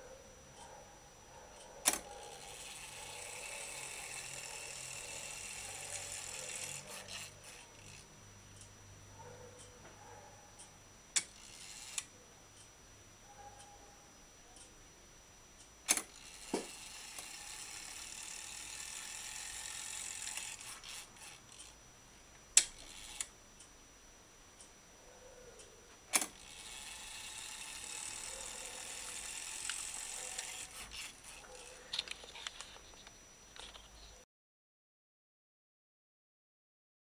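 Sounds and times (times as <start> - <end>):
clock movement clicks: 1.6 - 8.7, 10.6 - 12.7, 15.9 - 21.8, 22.6 - 23.3, 26.1 - 34.0
clock gear train whirring: 1.8 - 8.7, 10.6 - 12.7, 15.9 - 21.8, 22.6 - 23.3, 26.1 - 32.9.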